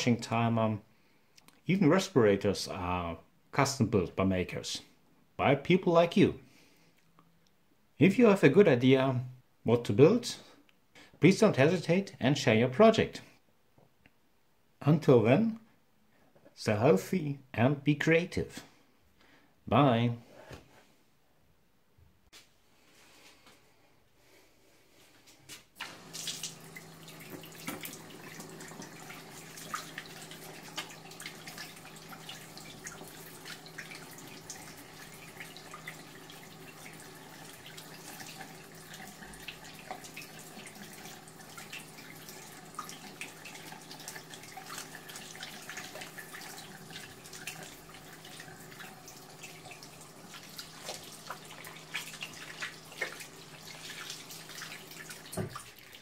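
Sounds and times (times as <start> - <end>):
tap water splashing into basin: 25.8 - 56.0.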